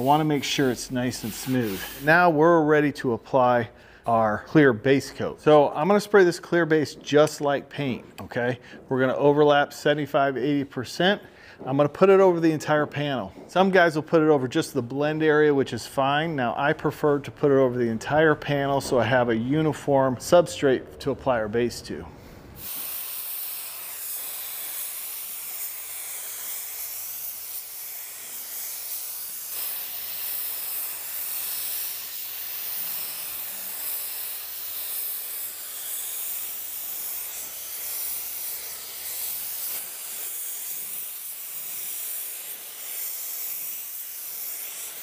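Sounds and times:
paint spray gun hissing: 0:00.0 - 0:02.4, 0:22.6 - 0:45.0.

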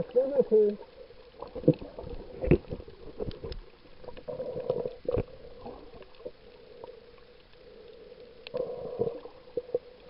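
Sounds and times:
muffled underwater gurgling: 0:00.0 - 0:07.1
faint steady hum: 0:00.0 - 0:10.0.

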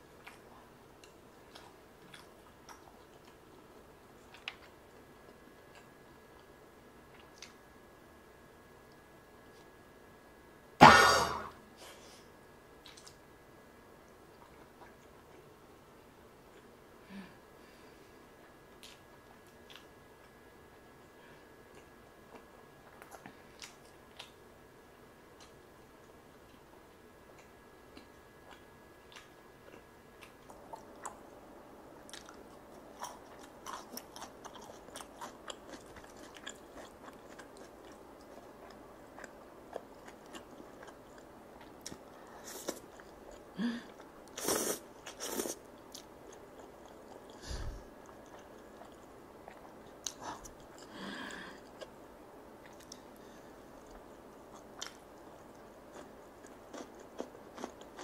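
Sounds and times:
close-miked chewing: 0:00.2 - 0:06.5, 0:21.7 - 0:24.4, 0:25.4 - 0:31.3, 0:32.0 - 0:51.0, 0:52.6 - 0:58.0.

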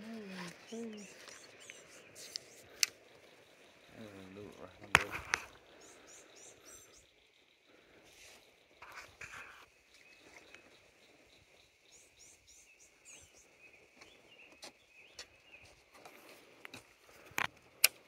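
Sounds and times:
high insect drone: 0:00.0 - 0:14.0
bird chirps: 0:00.0 - 0:16.5
light clicks and rustles: 0:04.8 - 0:05.6, 0:13.9 - 0:18.0.

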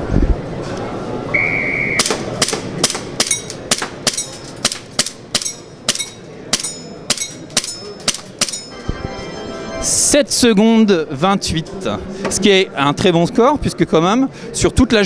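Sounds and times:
airsoft pistol shots: 0:01.9 - 0:05.2.

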